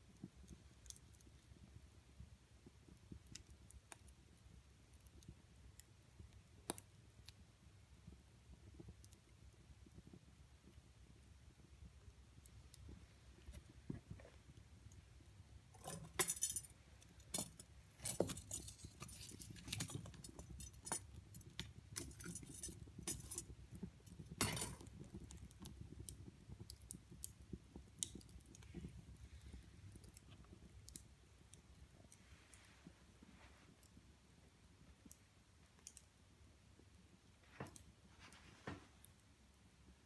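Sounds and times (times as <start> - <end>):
fire crackling: 0.0 - 40.0
metal tongs clinking on logs: 15.8 - 16.7, 24.4 - 24.9.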